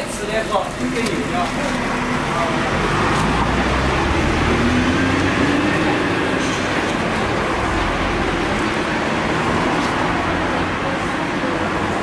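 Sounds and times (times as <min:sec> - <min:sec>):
street traffic rumble: 0:00.0 - 0:12.0
vehicle engine rising and falling: 0:01.8 - 0:11.1.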